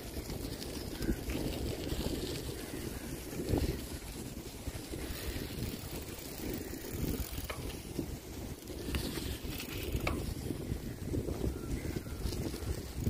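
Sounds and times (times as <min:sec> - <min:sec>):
bicycle frame rattling: 0:00.0 - 0:13.0
bicycle tyres crunching on dirt: 0:00.0 - 0:13.0
wind buffeting microphone: 0:00.0 - 0:13.0.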